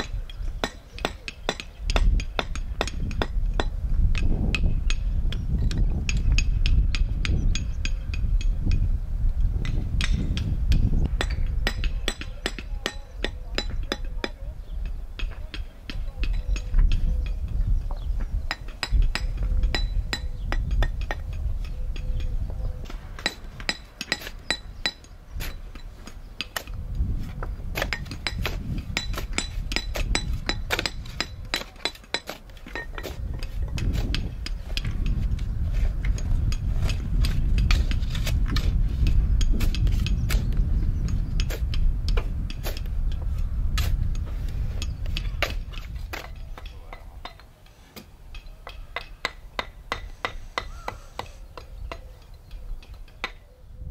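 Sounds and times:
hammer tapping bricks: 0.0s - 8.8s, 9.6s - 17.0s, 17.9s - 22.3s, 22.9s - 26.8s, 27.4s - 35.2s, 45.1s - 52.1s
brick pavers clinking: 22.8s - 40.2s.

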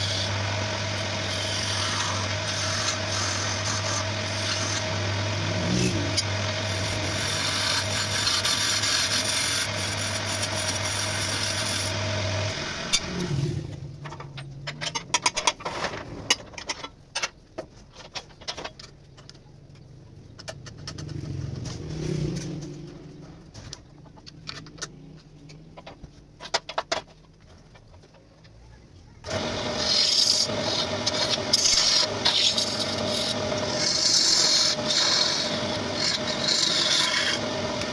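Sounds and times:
turning tool rasping on wood: 0.0s - 12.0s, 29.3s - 37.9s
wood lathe humming: 0.0s - 13.8s, 29.3s - 37.9s
clicks and knocks: 22.4s - 28.6s.

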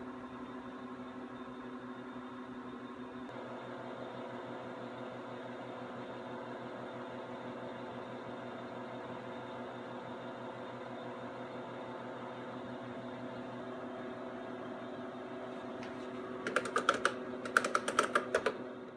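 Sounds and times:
computer humming: 0.0s - 3.4s, 13.6s - 18.9s
keyboard keys clicking: 15.8s - 18.7s.

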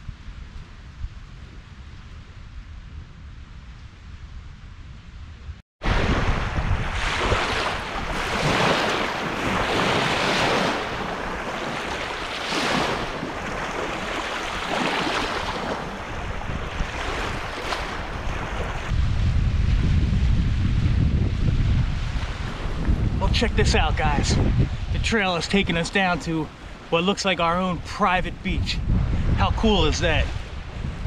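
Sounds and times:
wind buffeting microphone: 0.0s - 31.0s
waves lapping on sandy shore: 5.8s - 19.0s, 23.7s - 28.2s.

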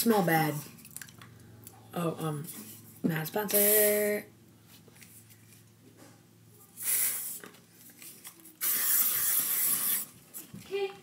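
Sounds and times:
aerosol spray hissing: 6.8s - 7.4s, 8.6s - 10.0s.

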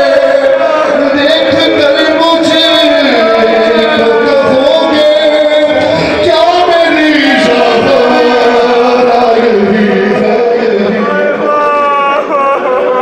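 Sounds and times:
man singing into a microphone: 0.0s - 13.0s.

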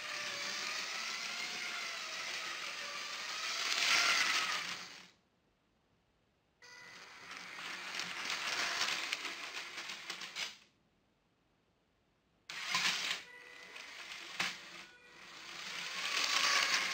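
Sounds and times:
toy train wheels clattering: 0.0s - 5.1s, 6.7s - 10.6s, 12.5s - 16.9s
faint motor whine: 12.5s - 16.9s.

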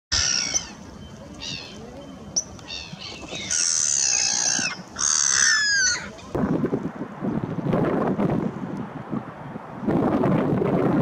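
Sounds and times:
gulls calling: 0.1s - 6.4s.

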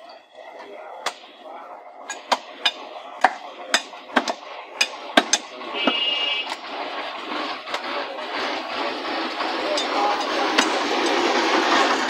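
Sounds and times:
steady background noise: 0.0s - 12.0s
cleaver chopping on wooden block: 2.2s - 6.0s.

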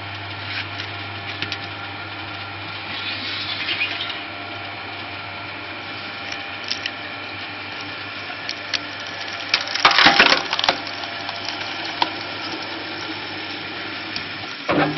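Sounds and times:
wood splitter motor hum: 0.0s - 14.9s
wood cracking and splintering: 6.2s - 7.0s, 7.8s - 12.9s.

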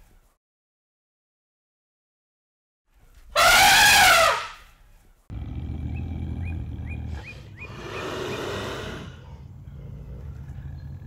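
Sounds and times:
elephant trumpeting: 3.4s - 4.6s
bird chirps: 5.9s - 8.6s.

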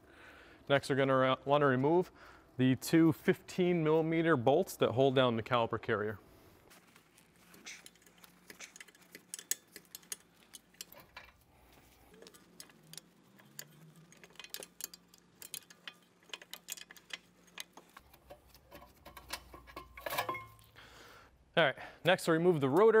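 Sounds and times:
faint ratchet wrench clicking: 7.6s - 11.5s, 12.1s - 18.4s.

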